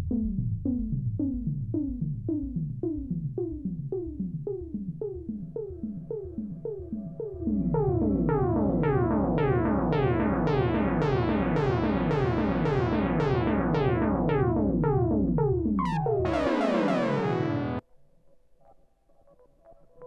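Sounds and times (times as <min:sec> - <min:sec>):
synthesizer tones sliding down: 0:05.6 - 0:17.8
bright downward synth sweep: 0:07.7 - 0:17.8.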